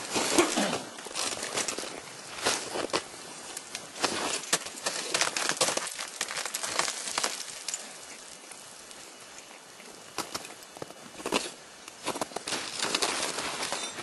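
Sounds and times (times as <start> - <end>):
ice axes striking ice: 4.0 - 7.8.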